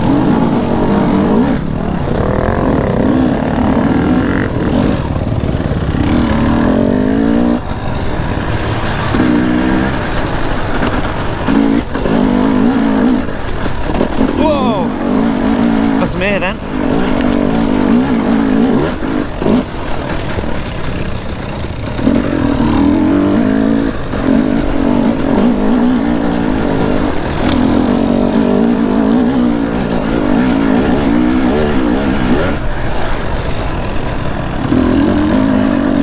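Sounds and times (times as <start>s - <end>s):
dirt bike engine revving: 0.0s - 36.0s.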